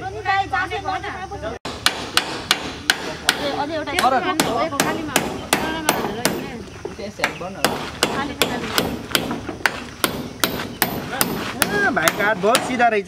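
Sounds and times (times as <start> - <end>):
hammer nailing through metal sheet: 1.7 - 3.6, 7.7 - 12.8.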